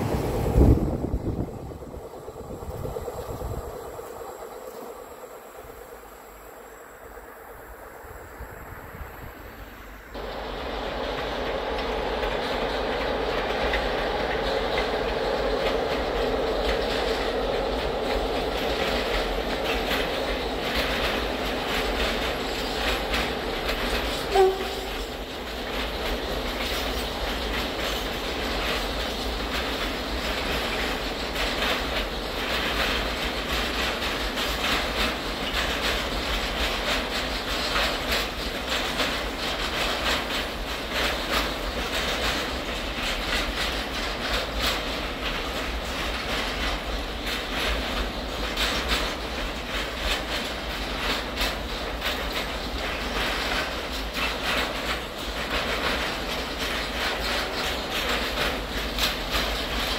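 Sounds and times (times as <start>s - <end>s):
locomotive hum: 0.0s - 59.9s
train wheels clicking on rail joints: 0.0s - 59.9s
loud train horn tone: 24.3s - 25.1s.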